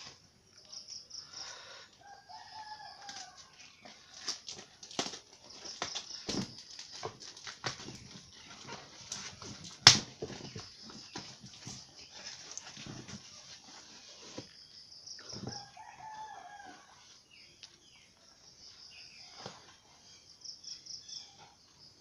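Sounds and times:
cardboard and plastic rustling: 2.6 - 14.7.

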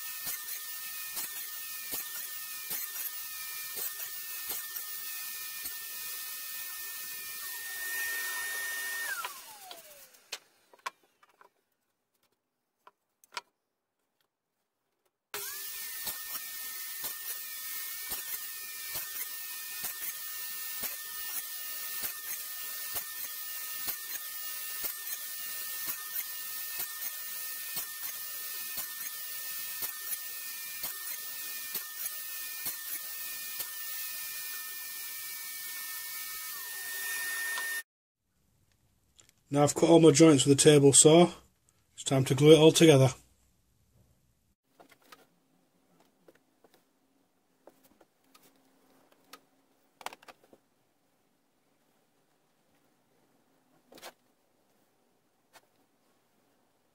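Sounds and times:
saw blade spinning down: 0.0 - 10.7, 15.4 - 37.8
table saw motor whining: 0.0 - 11.0, 15.4 - 37.9
saw blade cutting wood: 0.0 - 11.2, 15.4 - 37.8.

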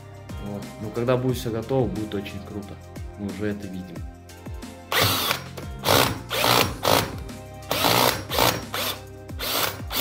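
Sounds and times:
cordless drill bursts: 4.9 - 10.0
drill bit working into wall: 4.9 - 10.0.

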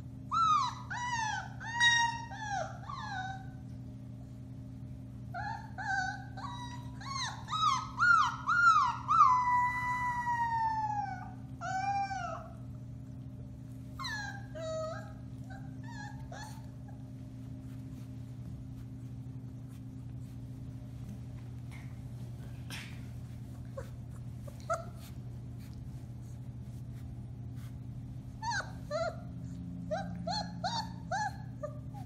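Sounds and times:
steady low hum: 0.0 - 32.0
puppy whimpering: 0.2 - 3.9, 5.3 - 22.2, 23.0 - 26.4, 27.6 - 32.0
puppy howling: 0.3 - 3.7, 5.4 - 12.7, 14.0 - 17.2, 28.4 - 32.0
puppy yipping: 0.3 - 3.7, 5.3 - 12.8, 13.8 - 20.4, 23.2 - 25.8, 27.6 - 32.0.

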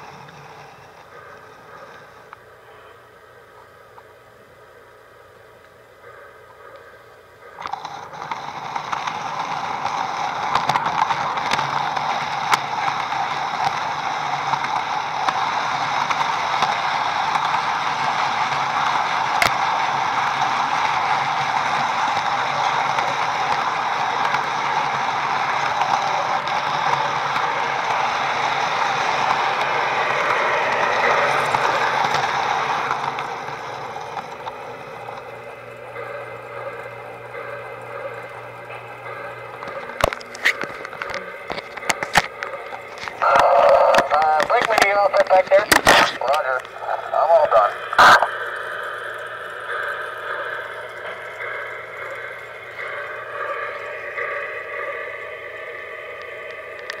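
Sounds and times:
model train motor and wheels whirring: 0.0 - 57.0
faint clicks: 5.6 - 6.9, 47.9 - 57.0.

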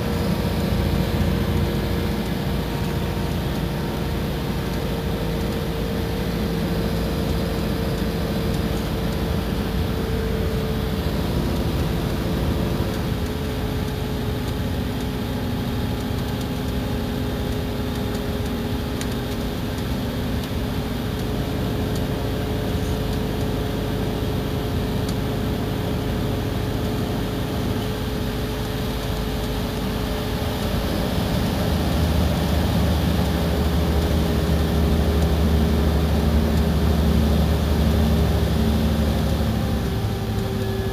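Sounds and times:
bus diesel engine drone: 0.0 - 40.9.

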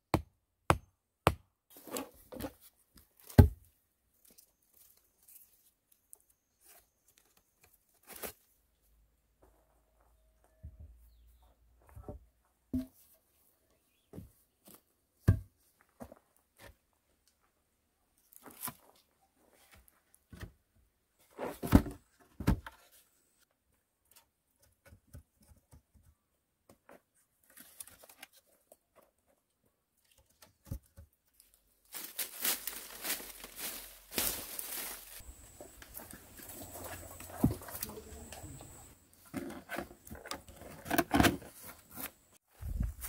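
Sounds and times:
rustling: 31.4 - 43.0.

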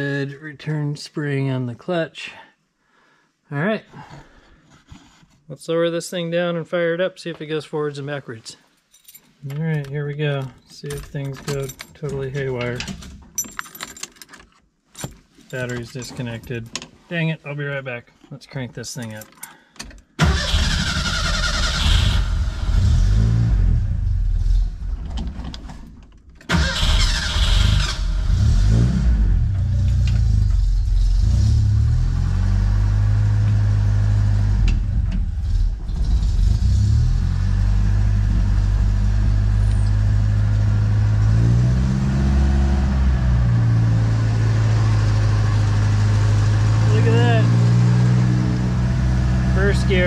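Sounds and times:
engine cranking: 19.1 - 22.4, 26.5 - 28.3
car engine starting and idling: 19.1 - 50.0
engine revving: 20.2 - 24.8, 26.5 - 50.0.

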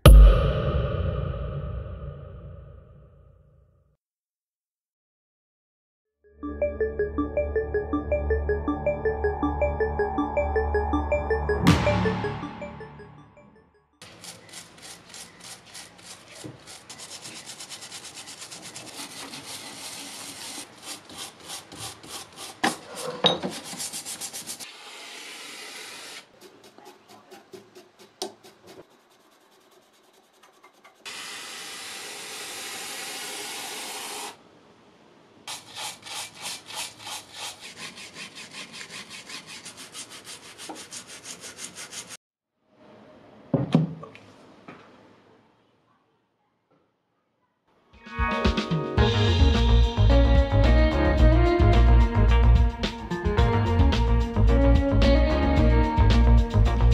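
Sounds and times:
stiff brush scrubbing metal parts: 14.0 - 24.7, 35.5 - 42.2
aerosol can hissing: 31.1 - 34.4.

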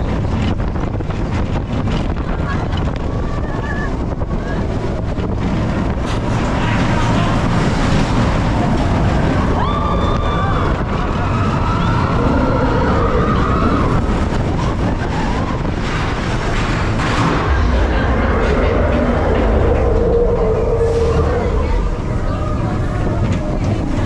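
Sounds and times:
roller coaster rumbling on track: 0.0 - 24.0
wind on microphone: 0.0 - 24.0
high wail: 17.4 - 23.2.

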